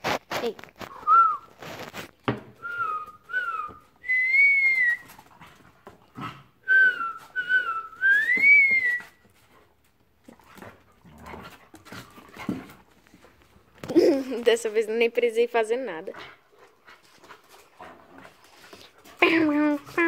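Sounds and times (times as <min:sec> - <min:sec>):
knocks and scuffles: 0:00.0 - 0:02.8
person whistling: 0:00.9 - 0:01.5, 0:02.6 - 0:05.2, 0:06.7 - 0:09.2.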